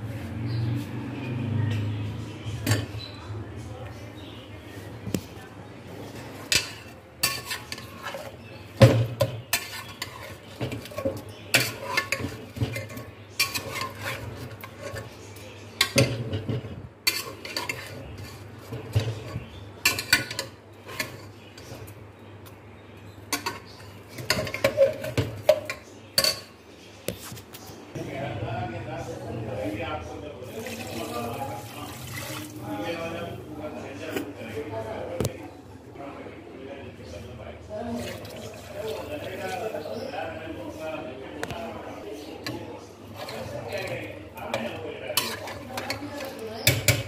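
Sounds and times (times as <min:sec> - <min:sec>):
metal spoon scraping cooking pot: 0:06.0 - 0:21.8, 0:23.3 - 0:26.5, 0:42.3 - 0:47.0.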